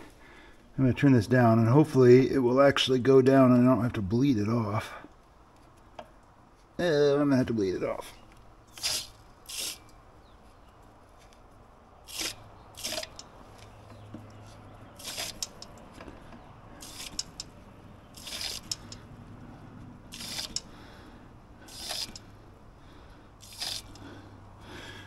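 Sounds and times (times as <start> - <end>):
water hissing from valve: 8.7 - 9.8, 12.1 - 13.3, 15.0 - 15.8, 16.8 - 17.5, 18.1 - 19.0, 20.1 - 20.7, 21.6 - 22.3, 23.4 - 24.1.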